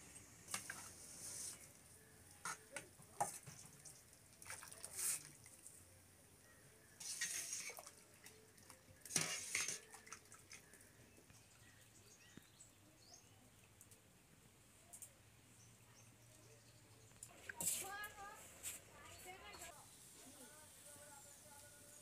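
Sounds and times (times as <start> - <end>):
water and rice splashing: 3.2 - 5.8, 7.0 - 10.8
metal ladle scraping pot: 7.0 - 7.8, 9.1 - 10.0
metal bowls and pot clinking: 9.1 - 10.0.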